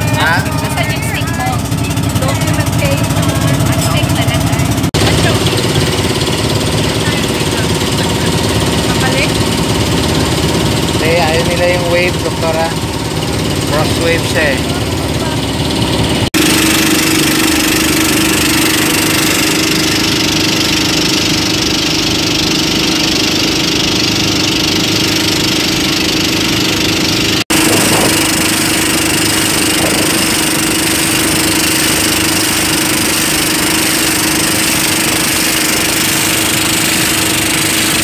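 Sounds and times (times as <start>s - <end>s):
boat engine droning: 0.0s - 38.0s
water rushing along hull: 0.0s - 38.0s
wind noise: 27.5s - 30.5s.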